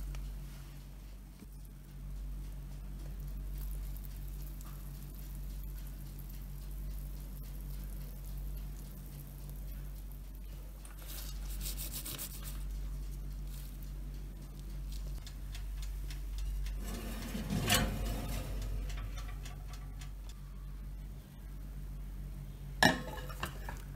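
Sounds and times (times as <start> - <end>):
faint ticks: 0.0 - 17.2
steady low hum: 0.0 - 23.9
scraping of bowl and glass dish: 16.8 - 19.8, 22.8 - 23.9.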